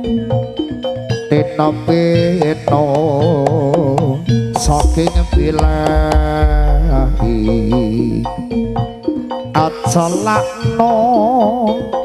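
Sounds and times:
metallophone notes: 0.0s - 12.0s
person singing with vibrato: 1.3s - 8.9s, 9.6s - 12.0s
deep bass tone: 4.6s - 9.0s.

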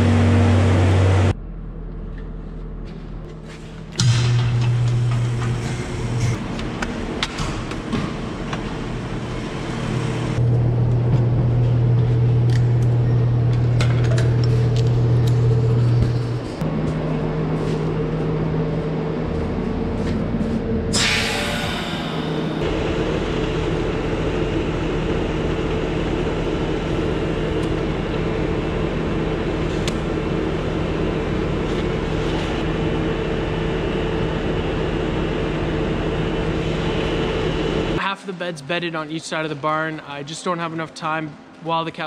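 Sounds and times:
air compressor humming: 3.4s - 38.0s
air hissing: 20.9s - 23.1s.

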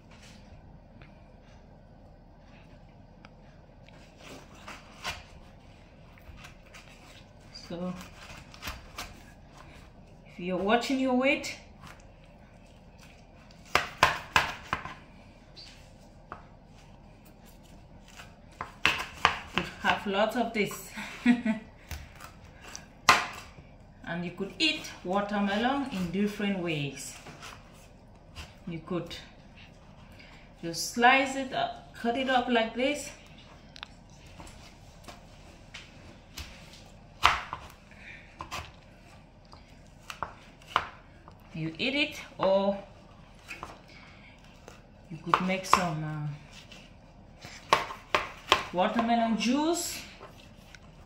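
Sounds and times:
knife slicing watermelon on board: 18.0s - 20.1s, 47.5s - 49.1s.

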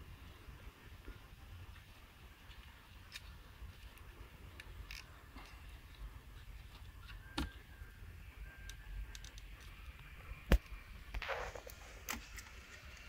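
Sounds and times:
small plastic clicks: 8.7s - 10.1s.

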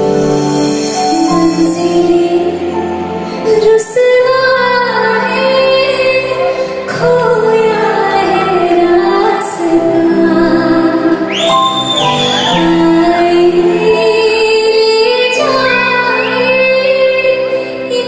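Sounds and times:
band accompaniment: 0.0s - 3.9s, 7.2s - 15.4s
woman singing a ballad: 0.8s - 11.4s, 12.4s - 18.0s.

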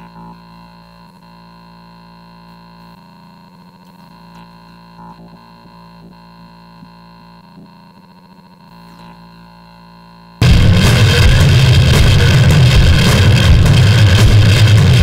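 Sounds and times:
buzzing electronic drone: 0.0s - 15.0s
glitchy stuttering flicker: 10.4s - 15.0s.

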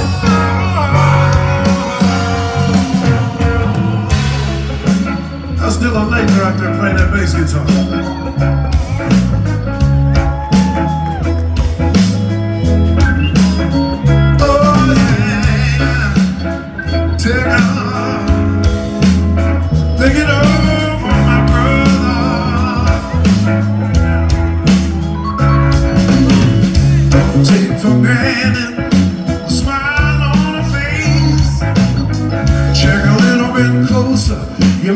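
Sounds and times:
man singing: 0.0s - 7.9s, 14.1s - 19.0s, 19.9s - 23.8s, 27.1s - 31.9s, 32.7s - 34.9s
blues-rock band playing: 0.0s - 34.9s.

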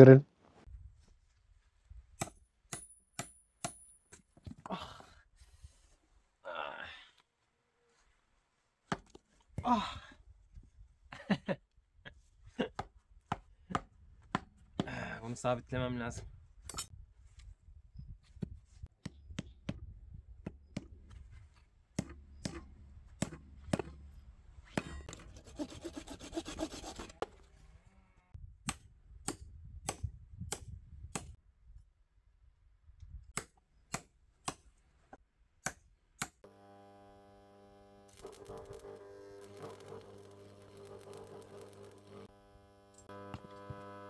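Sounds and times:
hammer striking steel rod: 2.2s - 4.0s
rasping scraping: 21.4s - 27.5s, 38.2s - 42.3s
steady hum with even tones: 36.4s - 44.0s.

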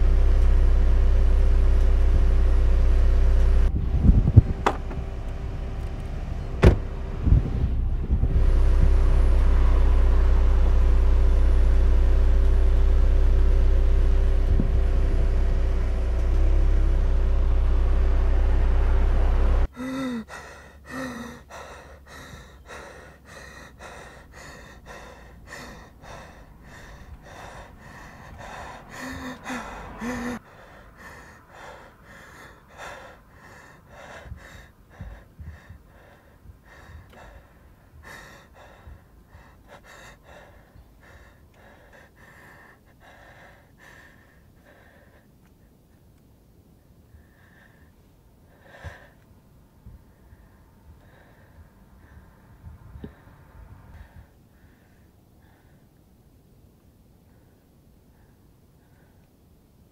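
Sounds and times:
car interior rumble: 0.0s - 55.8s
man breathing hard: 19.6s - 45.9s, 46.9s - 56.3s, 57.1s - 59.9s
man gasping: 19.7s - 44.9s.

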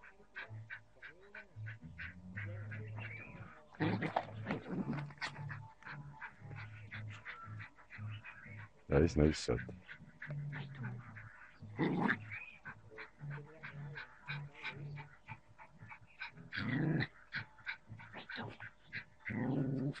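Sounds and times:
small dog growling: 3.7s - 7.4s, 10.4s - 20.0s
dog snarling: 3.8s - 8.4s, 9.9s - 20.0s.

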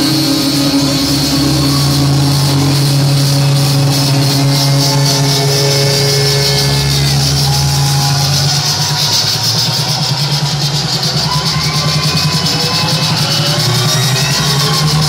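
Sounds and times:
saxophone playing long notes: 0.0s - 9.1s
electronic dance track: 0.0s - 15.0s.

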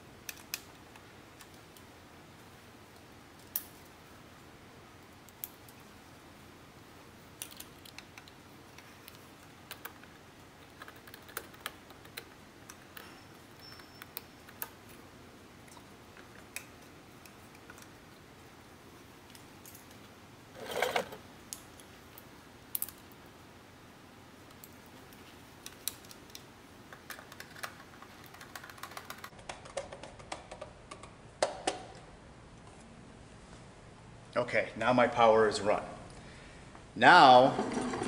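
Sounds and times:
wire and tool clicking on plastic: 0.2s - 1.9s, 7.3s - 15.0s, 24.5s - 32.0s.

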